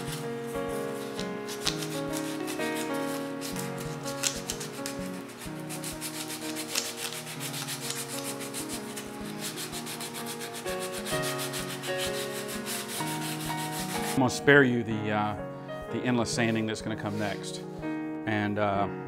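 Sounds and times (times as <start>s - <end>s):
sandpaper rubbing wood: 0.0s - 14.2s.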